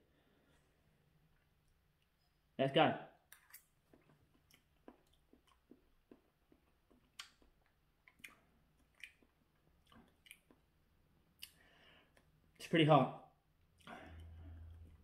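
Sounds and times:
person chewing food: 3.3s - 12.6s, 13.6s - 15.0s.

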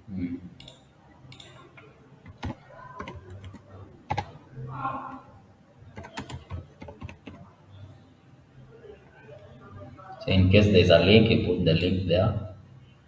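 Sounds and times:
computer keyboard typing: 0.6s - 1.6s, 2.2s - 4.4s, 5.9s - 7.4s.

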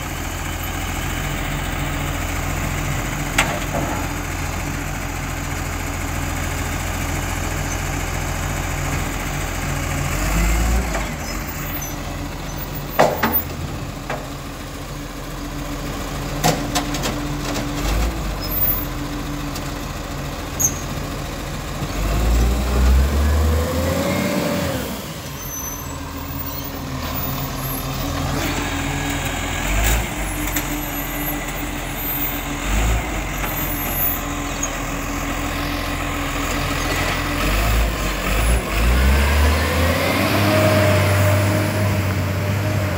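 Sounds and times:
diesel engine running: 0.0s - 42.9s
sharp clunks: 12.9s - 14.3s.

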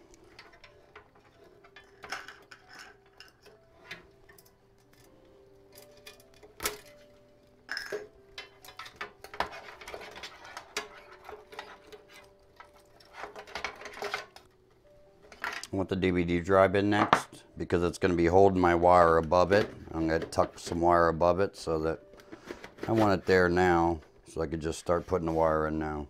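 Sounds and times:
cables clattering against metal case: 0.0s - 14.5s.

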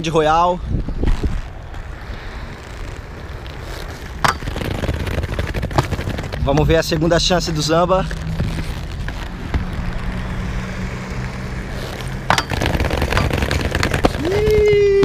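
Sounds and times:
skate wheels rolling on asphalt: 0.0s - 15.0s
skates clacking: 12.2s - 15.0s.

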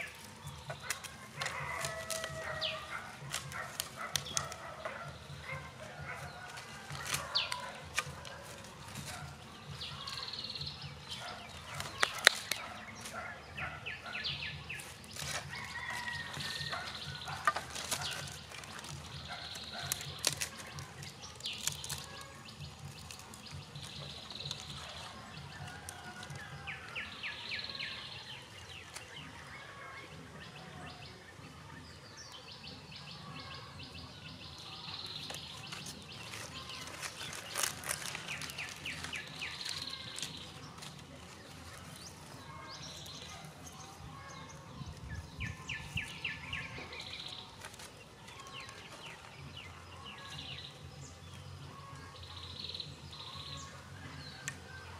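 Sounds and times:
dry sticks clicking: 0.0s - 13.2s, 14.7s - 26.4s, 35.1s - 43.3s
birds calling: 0.0s - 54.9s.

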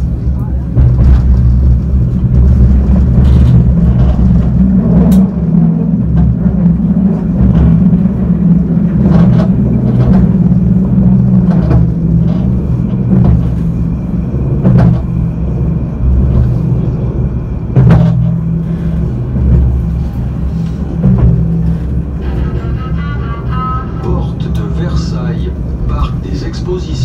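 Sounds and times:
tram rumbling on rails: 0.0s - 27.0s
sharp knocks: 0.8s - 13.9s, 14.6s - 15.3s, 17.8s - 18.4s.

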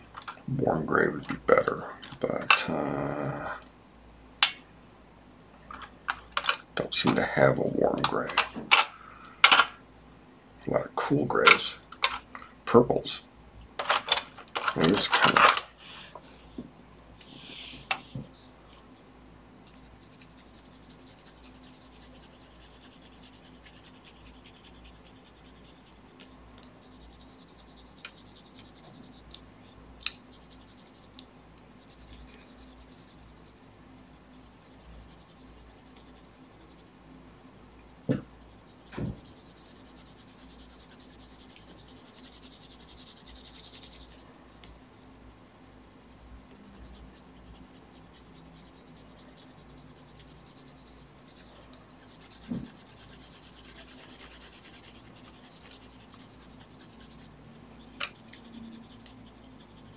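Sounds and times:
pencil scratching on paper: 19.7s - 29.4s, 30.2s - 57.3s, 58.1s - 59.9s.

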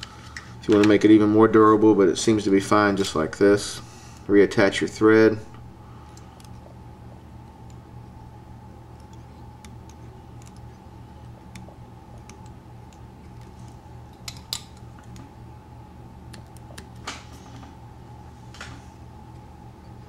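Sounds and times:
steady low hum: 0.0s - 20.0s
thread wrapping ticks and clicks: 8.9s - 15.3s.

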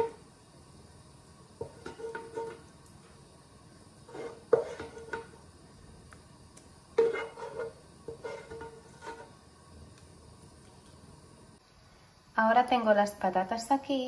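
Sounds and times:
wooden spatula scraping frying pan: 0.0s - 0.2s, 1.6s - 2.7s, 4.0s - 5.4s, 6.9s - 9.4s.

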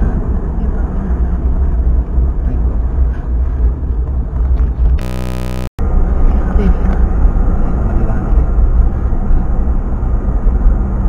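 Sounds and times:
vehicle wind and road rumble: 0.0s - 5.1s, 5.8s - 11.0s
electronic buzz: 5.0s - 5.8s.

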